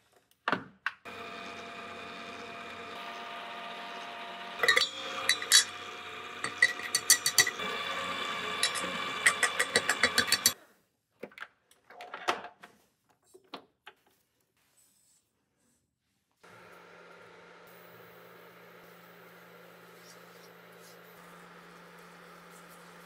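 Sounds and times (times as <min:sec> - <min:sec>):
kitchen appliance motor humming: 0:01.1 - 0:10.6, 0:16.4 - 0:23.0
sharp clicks and knocks: 0:08.6 - 0:10.6.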